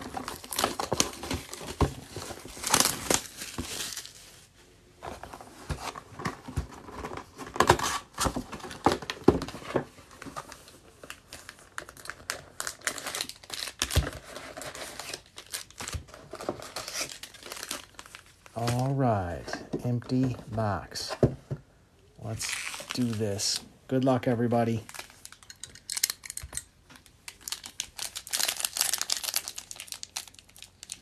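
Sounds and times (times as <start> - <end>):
plastic wrap crinkling and tearing: 0.0 - 4.5, 10.4 - 19.4, 22.4 - 23.6, 24.5 - 31.0
foil packs rustling: 22.4 - 23.6, 27.3 - 31.0.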